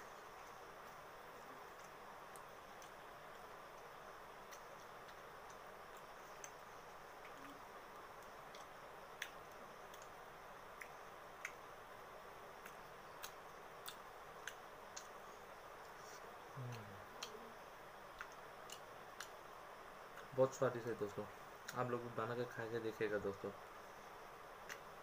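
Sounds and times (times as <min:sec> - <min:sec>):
faint clicks: 0:07.2 - 0:10.2, 0:18.1 - 0:19.4
person humming mm: 0:16.5 - 0:17.6.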